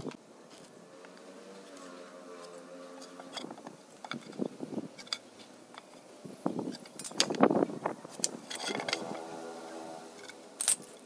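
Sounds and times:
metal tools clicking and scraping on wood: 1.7s - 7.4s, 8.1s - 9.3s, 10.1s - 11.0s.

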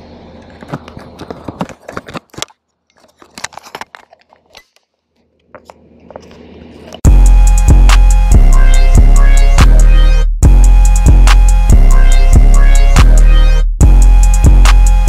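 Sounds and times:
loud music with heavy drum beat: 7.0s - 15.0s.

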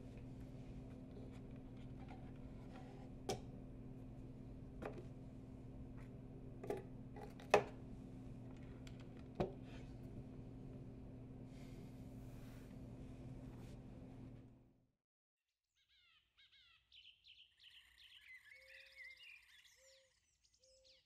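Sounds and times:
steady low hum: 0.0s - 14.7s.

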